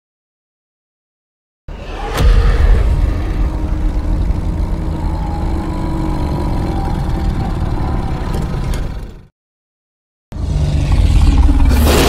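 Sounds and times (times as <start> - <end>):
deep rumble: 1.7 - 9.3.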